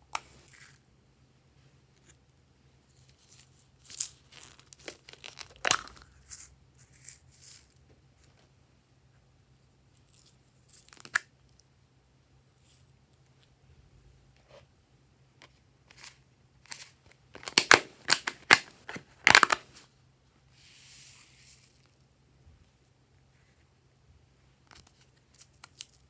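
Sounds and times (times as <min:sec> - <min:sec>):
packets crinkling and tearing: 0:03.8 - 0:06.4, 0:16.7 - 0:19.7.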